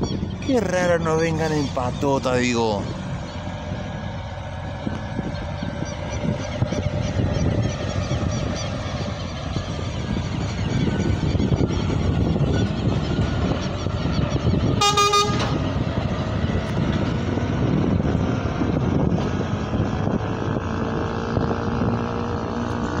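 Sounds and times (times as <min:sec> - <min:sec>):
truck diesel engine passing: 0:00.0 - 0:23.0
truck horn toot: 0:14.8 - 0:15.7.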